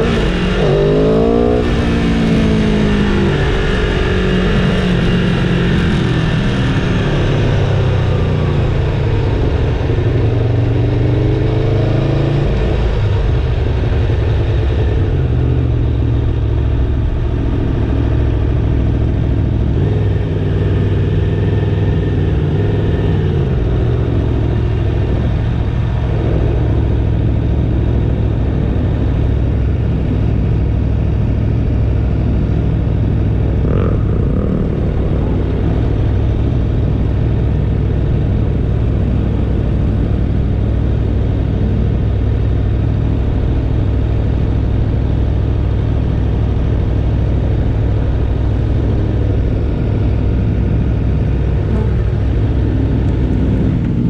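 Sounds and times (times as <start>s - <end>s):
motorcycle engine rumbling: 12.4s - 54.0s.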